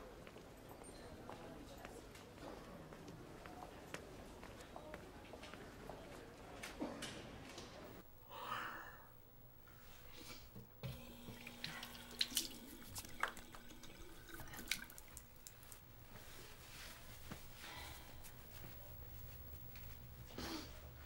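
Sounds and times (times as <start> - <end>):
tap water running into sink: 11.2 - 15.2
water splashes and drips: 11.3 - 15.6.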